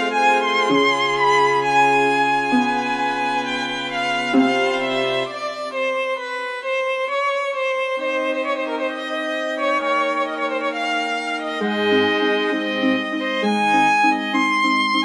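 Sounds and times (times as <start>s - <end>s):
violin long held notes: 0.0s - 15.0s.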